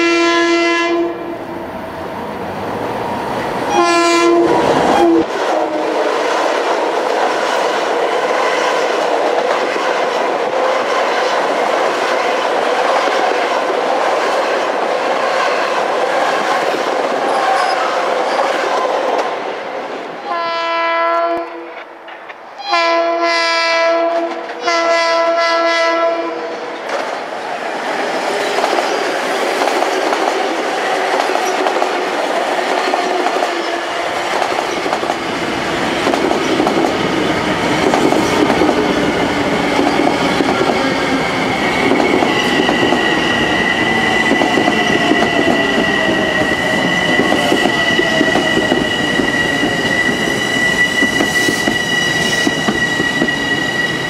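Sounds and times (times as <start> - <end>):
train horn blasts: 0.0 - 1.3, 3.7 - 6.5, 20.2 - 21.9, 22.6 - 26.8
train cars rumbling and clattering: 26.7 - 54.0.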